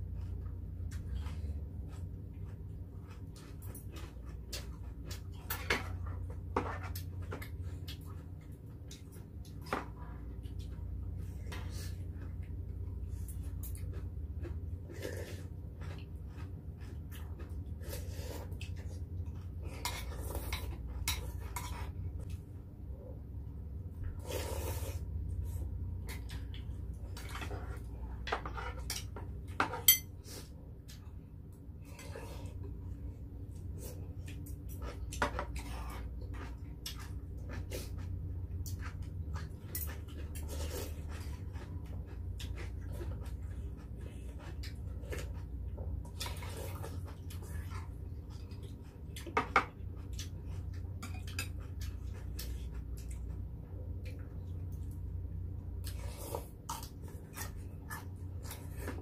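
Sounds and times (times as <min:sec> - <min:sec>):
chopsticks and spoons clinking: 0:28.9 - 0:30.1
metal clink on dish: 0:29.9 - 0:30.1.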